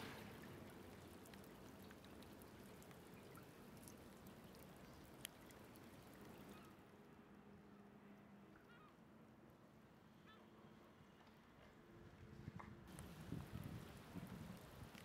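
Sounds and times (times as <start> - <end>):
water trickling and dripping: 0.0 - 6.7, 12.9 - 15.0
small ticks: 1.2 - 6.3.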